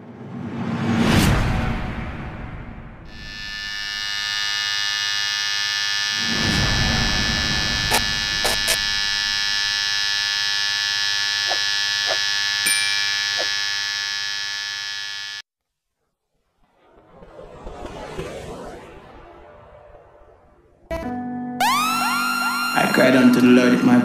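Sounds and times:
electronic buzzing drone: 3.0s - 15.5s, 21.6s - 24.0s
sharp clicks and blips: 7.6s - 9.9s
rumbling swell: 16.3s - 21.0s.

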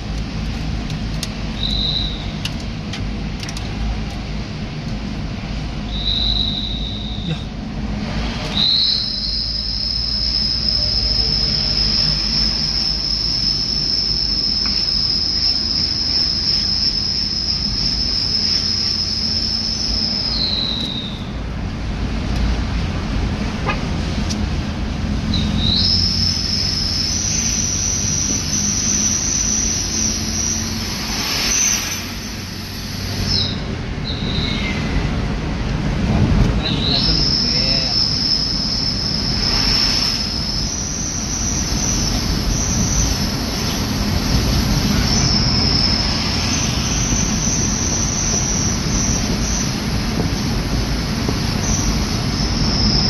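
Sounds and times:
car road and engine rumble: 0.0s - 53.0s
cicadas droning: 8.6s - 21.3s, 25.3s - 35.0s, 36.6s - 53.0s.

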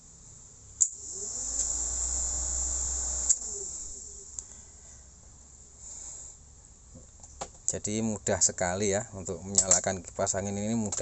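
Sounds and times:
high-pitched hiss: 0.0s - 6.6s
dashboard fans whirring: 0.0s - 11.0s.

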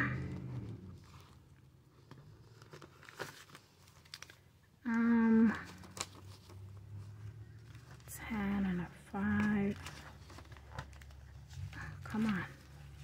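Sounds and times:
banknotes crinkling: 1.0s - 4.8s, 5.4s - 13.0s.

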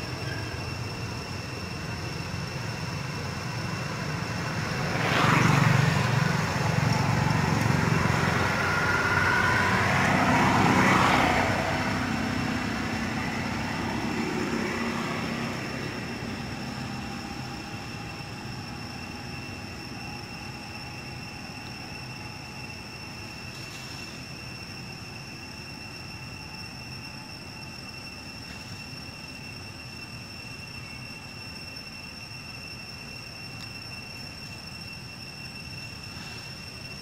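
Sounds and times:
motor vehicle passing by: 4.0s - 17.3s.

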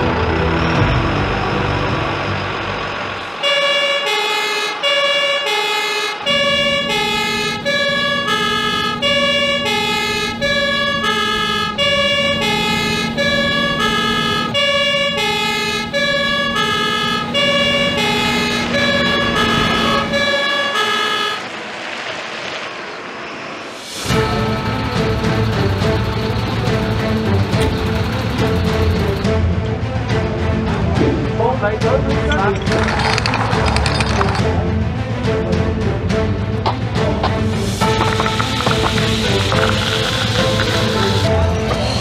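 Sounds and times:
truck engine running: 0.0s - 42.0s
fire engine two-tone horn: 3.2s - 21.6s.

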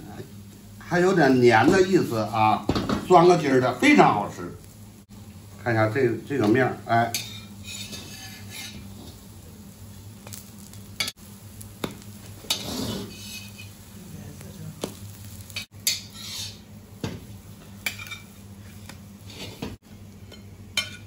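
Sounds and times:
light frying sizzle: 0.0s - 21.0s
metal spatula scraping a wok: 7.1s - 9.2s, 12.4s - 13.8s, 15.5s - 16.7s, 19.2s - 21.0s.

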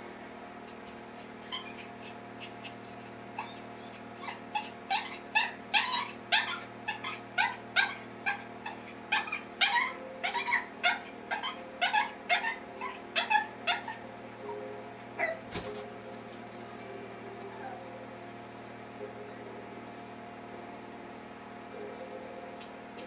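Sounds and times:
small dog yipping: 1.4s - 2.6s, 3.4s - 14.0s, 15.2s - 15.4s.

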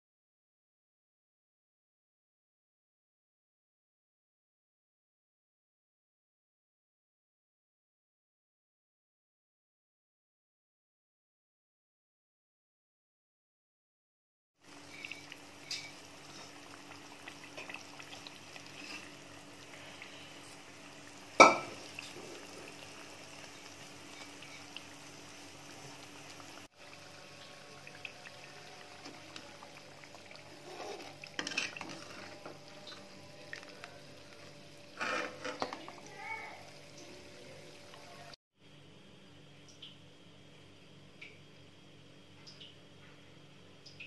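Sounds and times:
butter bubbling in pan: 14.6s - 38.3s
ladle clanking: 21.4s - 22.2s, 30.3s - 33.7s, 35.0s - 36.1s
ladle scraping pan: 30.3s - 33.6s, 34.9s - 36.1s.

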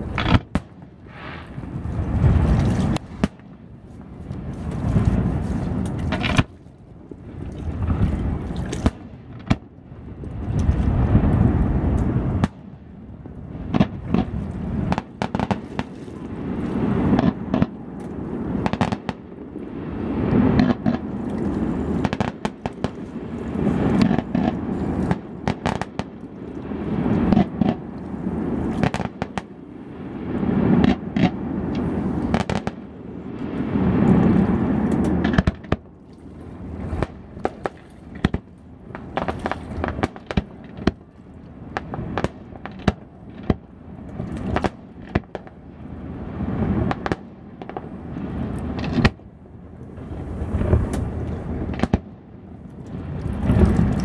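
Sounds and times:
fireworks bangs and crackles: 0.0s - 6.5s, 7.8s - 9.7s, 10.3s - 35.9s, 36.8s - 45.7s, 46.3s - 49.3s, 49.9s - 54.0s
low rumble: 1.0s - 8.8s, 52.9s - 54.0s.

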